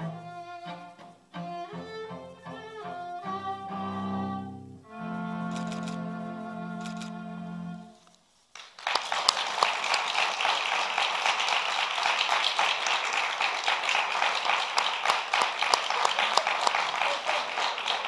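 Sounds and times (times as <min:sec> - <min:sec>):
viola and cello chord: 0:00.0 - 0:08.0
audience applause: 0:08.5 - 0:18.0.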